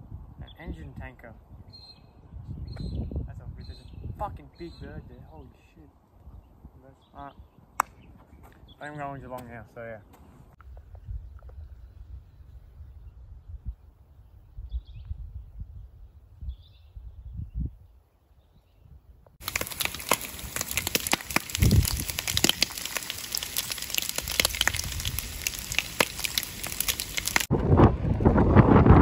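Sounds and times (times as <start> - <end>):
wind rumble on microphone: 0.0 - 5.6, 10.6 - 29.0
bacon sizzling in frying pan: 19.4 - 27.5.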